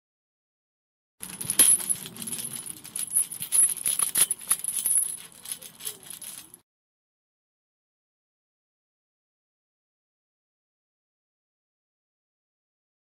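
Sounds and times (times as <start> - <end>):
metal jingling and clicking: 1.2 - 6.6.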